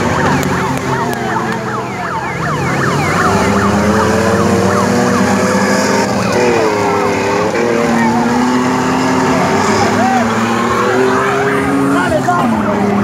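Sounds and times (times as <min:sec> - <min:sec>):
siren-like falling whoops: 0:00.0 - 0:06.2
vehicle engine revving high: 0:00.0 - 0:13.0.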